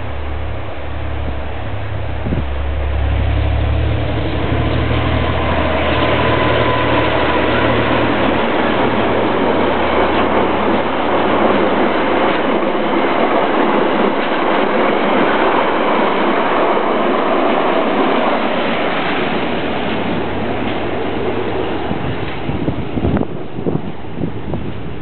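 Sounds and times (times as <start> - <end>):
low engine hum: 0.0 - 13.4
train wheels rumbling on rails: 0.0 - 25.0.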